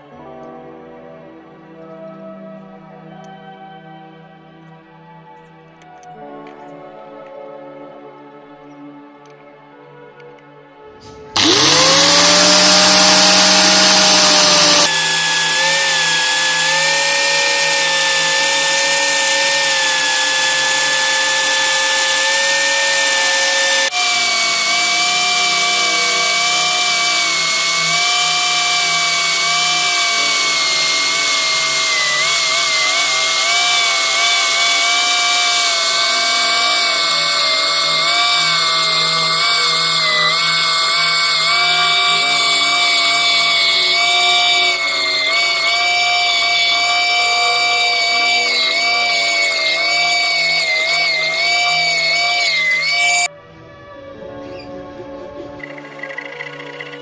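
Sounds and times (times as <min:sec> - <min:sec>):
disc sander whining: 0:11.4 - 0:53.3.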